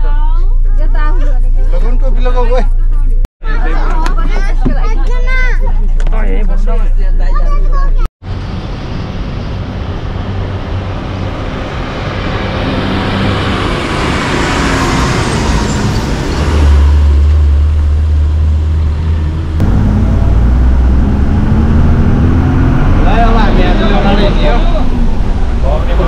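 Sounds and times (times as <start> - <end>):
deeper engine hum: 7.5 - 26.0
bus engine drone and tyre noise: 8.2 - 26.0
truck passing: 8.2 - 26.0.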